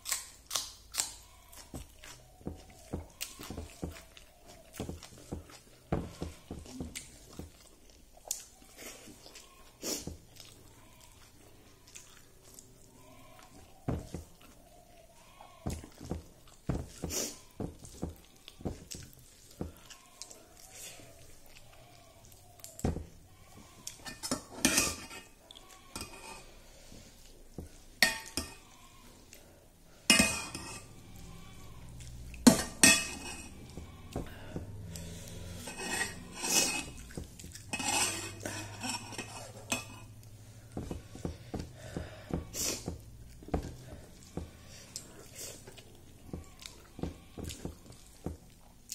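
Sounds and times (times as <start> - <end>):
fingers scraping food on plate: 30.1 - 34.2, 35.0 - 40.1.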